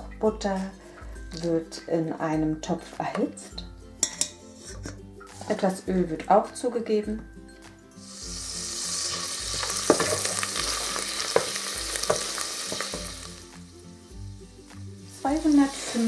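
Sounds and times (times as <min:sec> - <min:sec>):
butter sizzling in a pot: 0:08.0 - 0:16.0
wooden spoon knocking on pot: 0:09.6 - 0:13.2.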